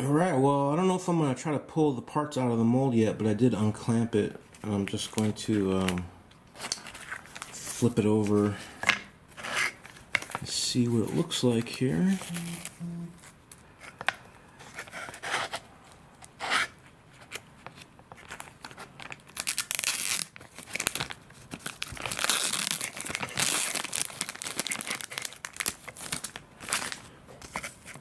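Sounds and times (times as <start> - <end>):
plastic sheet peeling and crinkling: 9.6 - 15.6, 16.2 - 28.0.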